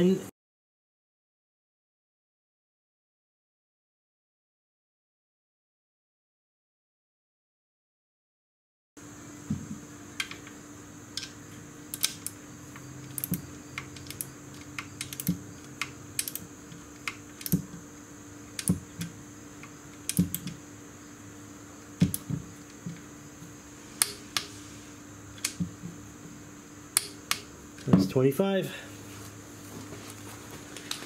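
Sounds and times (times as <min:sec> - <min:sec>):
faint steady hum: 0:09.0 - 0:31.0
socket wrench ratcheting: 0:13.0 - 0:15.4, 0:16.2 - 0:16.4.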